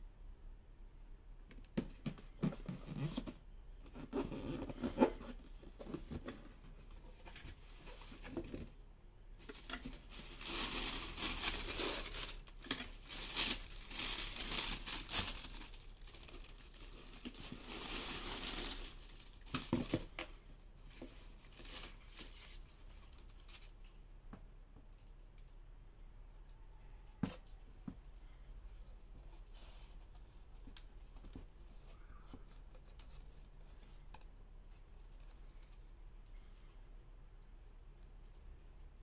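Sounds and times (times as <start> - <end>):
tissue paper rustling: 9.4 - 20.0, 21.0 - 23.7.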